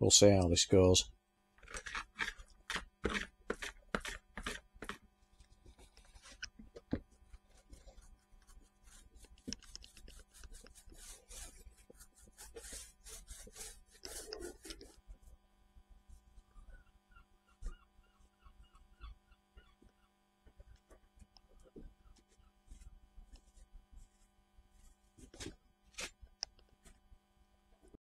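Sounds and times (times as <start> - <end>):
paint roller rubbing on wood: 1.8 - 5.0, 7.5 - 15.0.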